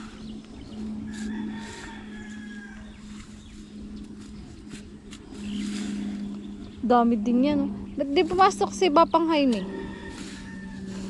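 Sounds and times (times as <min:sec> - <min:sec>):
hoes scraping through soil: 0:00.0 - 0:06.6, 0:09.4 - 0:11.0
steady low hum: 0:00.0 - 0:11.0.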